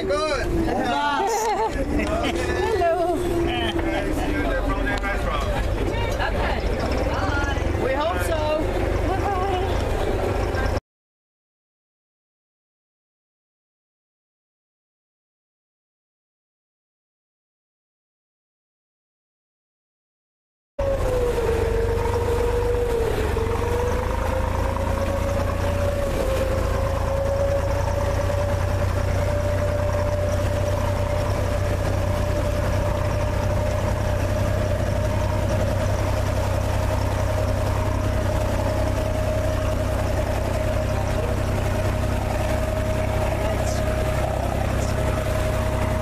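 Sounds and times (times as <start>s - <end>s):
boat engine humming: 0.0s - 10.8s, 20.8s - 46.0s.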